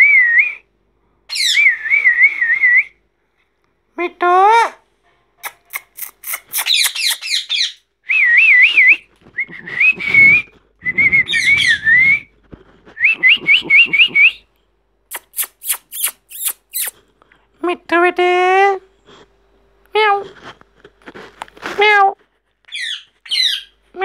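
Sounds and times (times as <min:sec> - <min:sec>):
parakeets chirping and whistling: 0:01.3 - 0:02.2, 0:05.5 - 0:09.0, 0:09.8 - 0:12.3, 0:15.1 - 0:17.0, 0:22.7 - 0:23.8.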